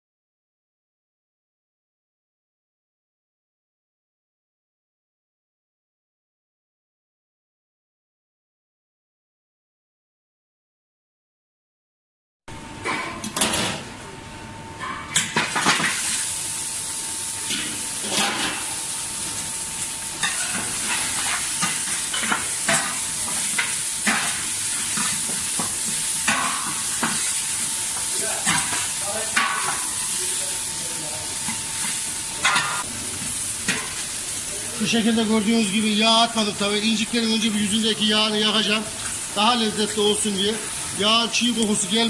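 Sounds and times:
meat sizzling in a pan: 15.6s - 42.0s.

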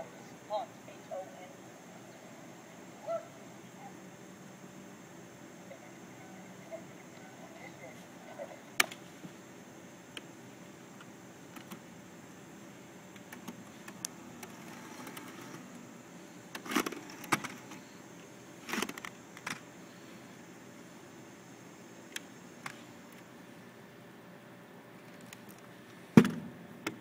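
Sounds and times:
low steady hum: 0.0s - 27.0s.

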